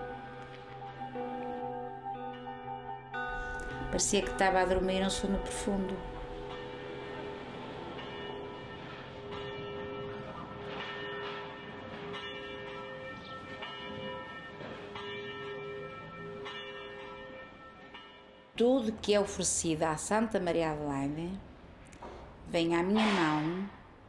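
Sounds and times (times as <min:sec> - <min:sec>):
bells ringing: 0:00.0 - 0:19.2.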